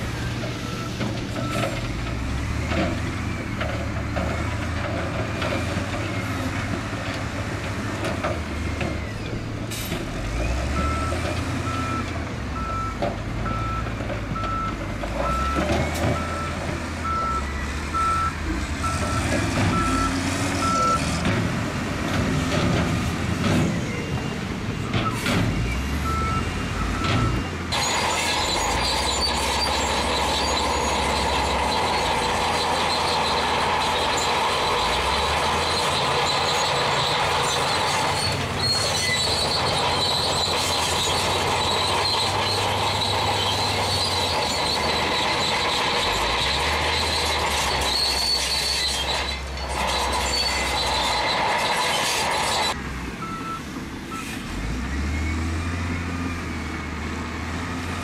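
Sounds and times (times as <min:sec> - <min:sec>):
diesel engine running: 0:00.0 - 0:58.0
metallic grinding and squealing: 0:27.7 - 0:52.8.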